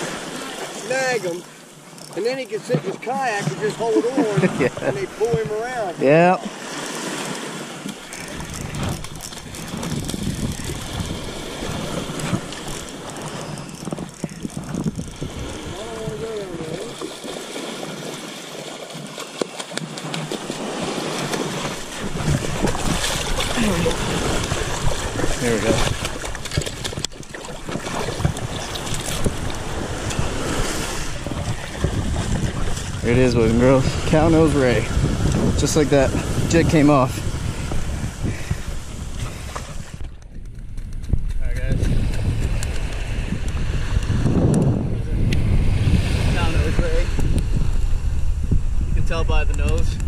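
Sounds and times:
small waves washing on beach: 0:00.0 - 0:40.2, 0:41.1 - 0:50.0
wind rumbling on microphone: 0:02.7 - 0:06.4, 0:07.0 - 0:18.3, 0:19.8 - 0:50.0
fish splashing in water: 0:06.4 - 0:33.0.

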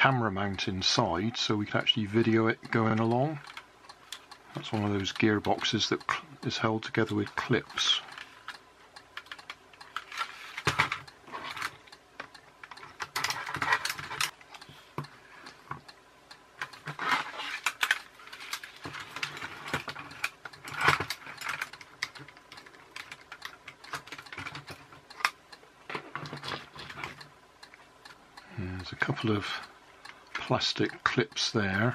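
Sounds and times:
plastic toy car clicking and rattling: 0:07.3 - 0:14.4, 0:16.6 - 0:27.2.

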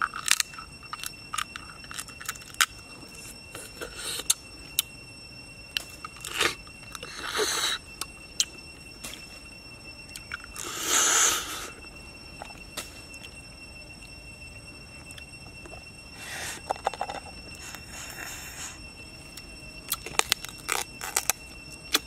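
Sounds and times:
crab shell crunching: 0:19.9 - 0:22.0.

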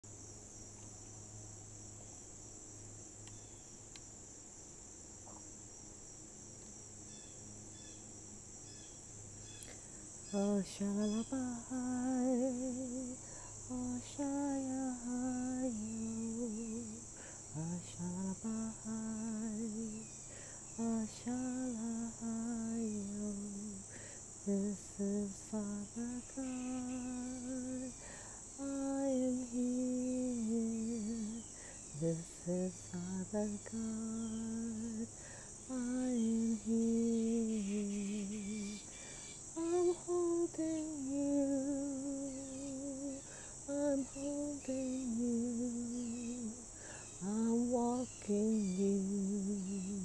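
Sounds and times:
insects droning: 0:00.0 - 0:50.0
woman humming: 0:24.5 - 0:28.0, 0:28.6 - 0:35.1, 0:39.6 - 0:46.6.

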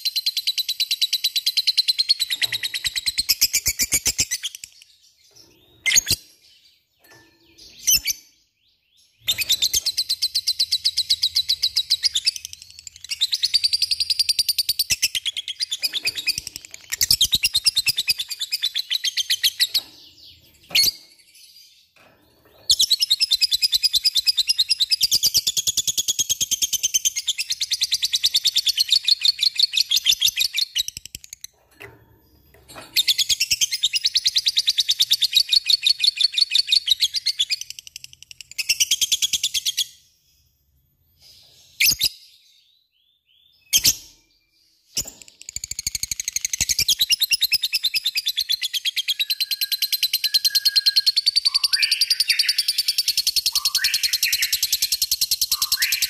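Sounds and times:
sharp bird chirps: 0:00.0 - 0:21.3, 0:43.0 - 0:56.0.

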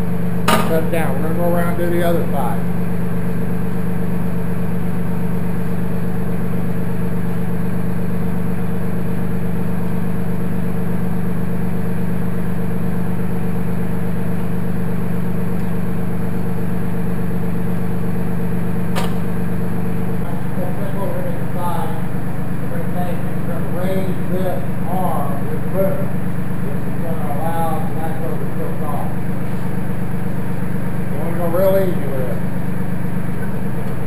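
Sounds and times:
tractor diesel engine idling: 0:00.0 - 0:34.0
sharp click: 0:19.0 - 0:19.2.

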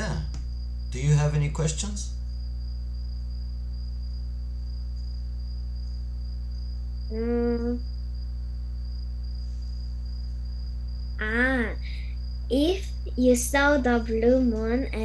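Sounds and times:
low electrical hum: 0:00.0 - 0:15.0
girl humming hmm: 0:07.1 - 0:07.8.

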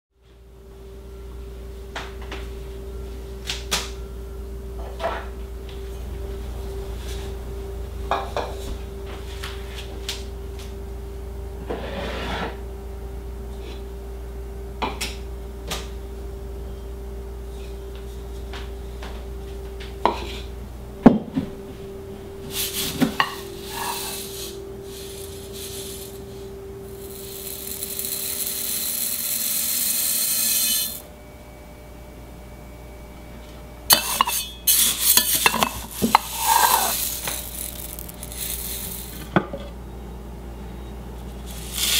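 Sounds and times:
kernels rattling: 0:22.5 - 0:26.4, 0:27.0 - 0:31.0, 0:33.9 - 0:39.4, 0:41.4 - 0:41.9
grain pouring hiss: 0:22.5 - 0:31.0, 0:33.9 - 0:39.3, 0:41.4 - 0:41.9.

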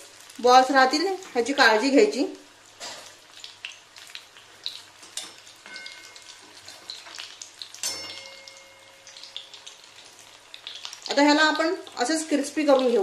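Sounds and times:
deep-frying bubbling and crackling: 0:00.0 - 0:13.0
spatula knocking pan: 0:05.1 - 0:09.7.

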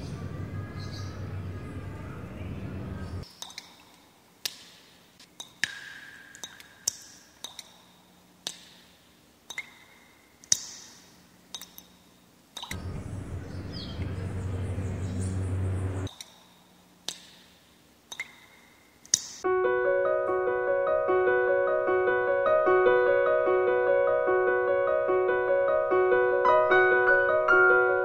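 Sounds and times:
steady low hum: 0:00.0 - 0:03.2, 0:12.4 - 0:16.1.

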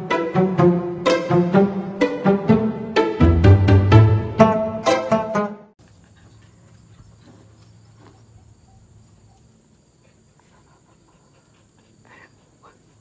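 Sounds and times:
music: 0:00.0 - 0:05.8.

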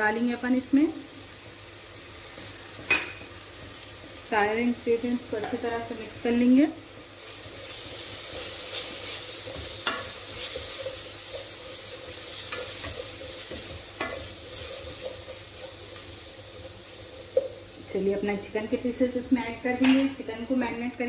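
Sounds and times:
onions sizzling in hot oil: 0:00.0 - 0:21.0
spoon stirring and scraping pot: 0:07.2 - 0:17.7.

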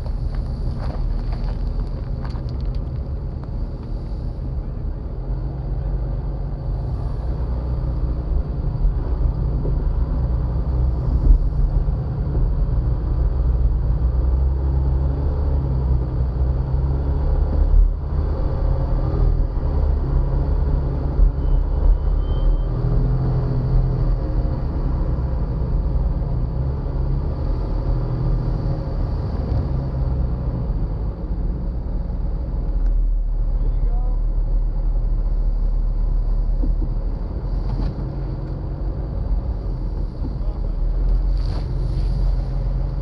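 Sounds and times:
engine low rumble: 0:00.0 - 0:43.0.

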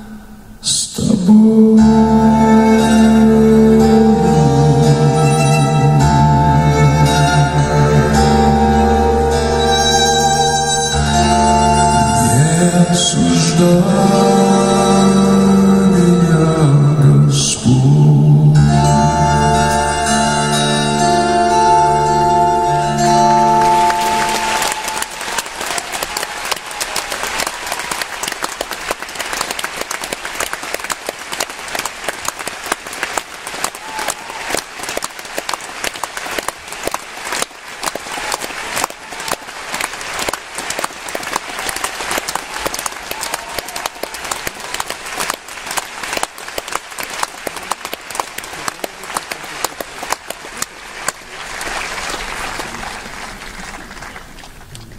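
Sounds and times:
audience applauding: 0:23.3 - 0:54.9.

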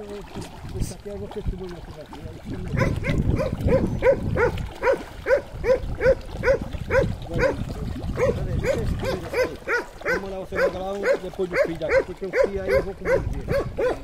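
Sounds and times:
dog barking: 0:02.8 - 0:07.6, 0:08.2 - 0:14.0.

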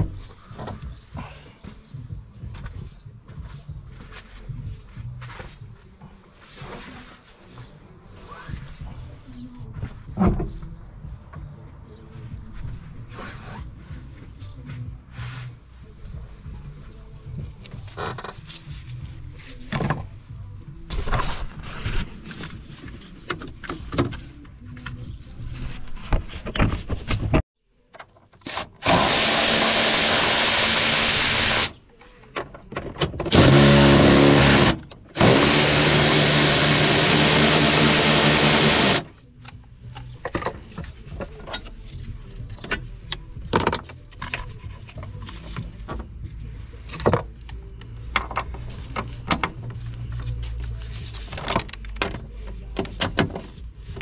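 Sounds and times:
power tool running: 0:28.8 - 0:31.7, 0:33.3 - 0:39.1.

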